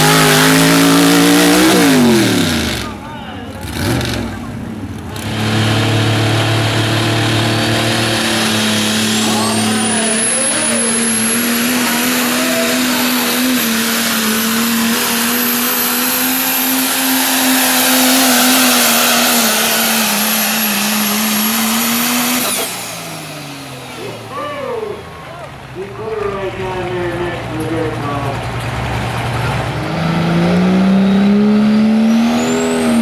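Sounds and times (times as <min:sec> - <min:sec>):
diesel engine running hard: 0:00.0 - 0:33.0
high turbo whistle: 0:08.5 - 0:23.9.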